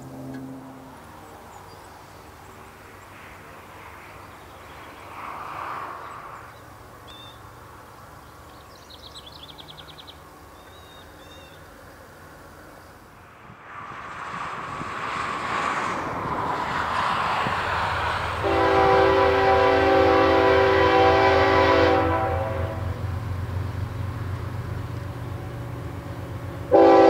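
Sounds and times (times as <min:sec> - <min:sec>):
birds chirping and trilling: 0:08.2 - 0:11.8
wind hissing: 0:12.0 - 0:20.2.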